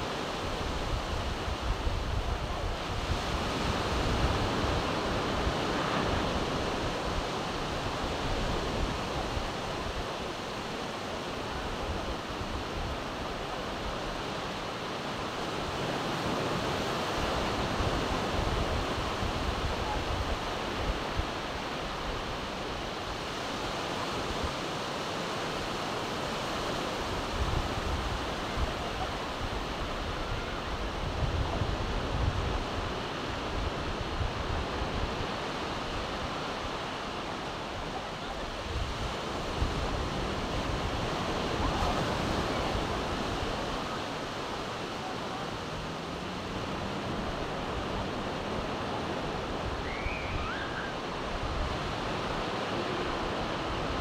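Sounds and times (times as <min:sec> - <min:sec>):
waves breaking on beach: 0:00.0 - 0:54.0
wind buffeting microphone: 0:26.6 - 0:37.0.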